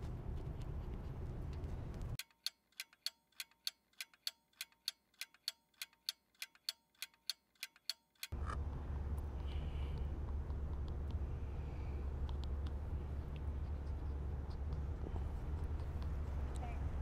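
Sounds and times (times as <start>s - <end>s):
outdoor street background: 0.0s - 17.0s
clock ticking: 2.2s - 8.4s.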